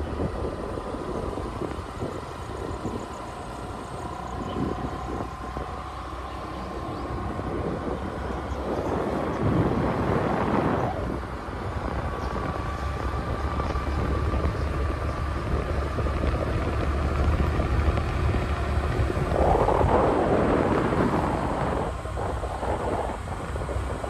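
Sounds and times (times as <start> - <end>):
rush of noise: 0.0 - 24.0
thin steady whine: 0.0 - 24.0
wind buffeting microphone: 0.0 - 24.0.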